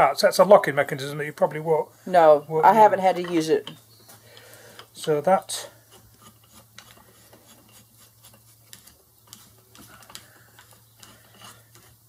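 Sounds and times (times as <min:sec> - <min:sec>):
wooden clicks and rubbing: 0:05.9 - 0:12.0.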